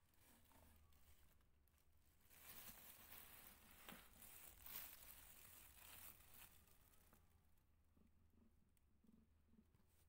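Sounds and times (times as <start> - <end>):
faint rustling and handling: 0.0 - 7.7.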